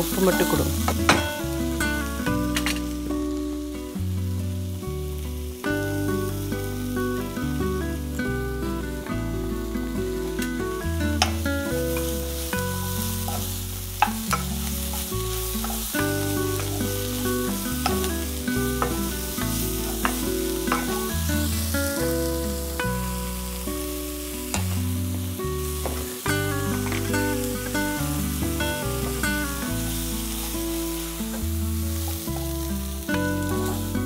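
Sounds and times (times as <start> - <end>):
instrumental background music: 0.0 - 34.0
vegetables sizzling in frying pan: 0.0 - 34.0
spatula tapping pan: 17.6 - 21.1.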